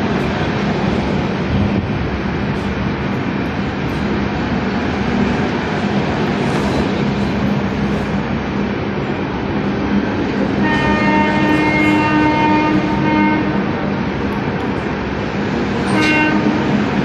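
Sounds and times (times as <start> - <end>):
train wheels rumbling on rail: 0.0 - 17.0
train horn: 10.6 - 13.8, 15.8 - 16.9.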